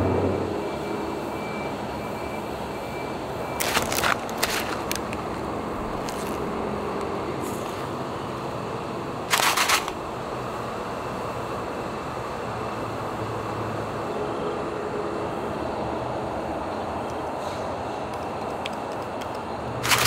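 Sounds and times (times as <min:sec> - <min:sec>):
steady background noise: 0:00.0 - 0:20.0
crackly packaging rustle: 0:03.6 - 0:07.9, 0:09.3 - 0:10.0.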